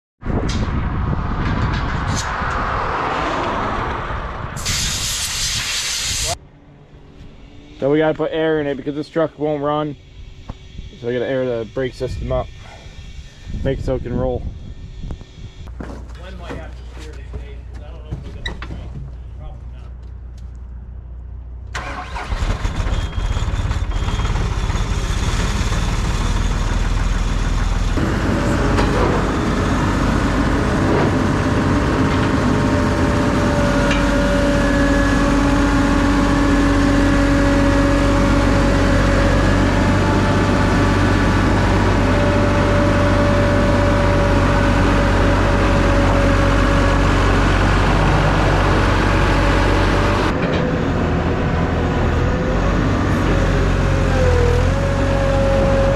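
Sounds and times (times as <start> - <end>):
steady whine: 6.2 - 15.8
diesel engine starting and running: 16.3 - 55.9.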